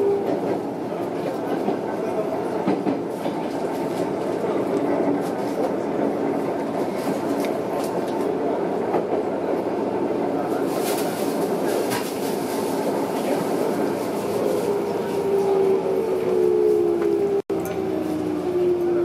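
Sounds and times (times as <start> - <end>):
train wheels rumbling on rail: 0.0 - 19.0.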